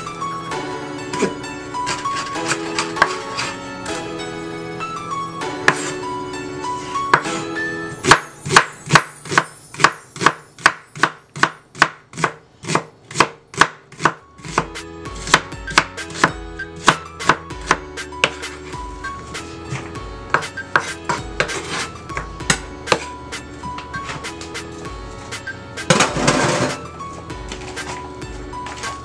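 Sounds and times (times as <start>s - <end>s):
knife striking cutting board: 5.7s - 5.9s, 8.0s - 18.6s, 19.7s - 23.1s.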